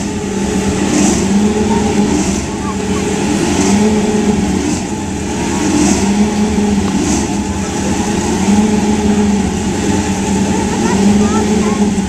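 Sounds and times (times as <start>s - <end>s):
race car engines droning: 0.0s - 12.0s.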